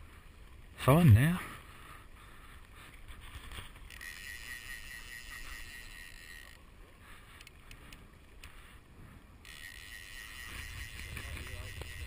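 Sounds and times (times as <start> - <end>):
reel clicks: 2.6 - 12.0
fly reel ratchet buzzing: 3.8 - 6.6, 9.4 - 12.0.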